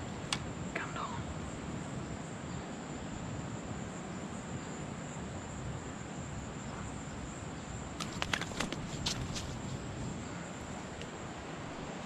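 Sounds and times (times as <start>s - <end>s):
steady outdoor rush: 0.0s - 12.0s.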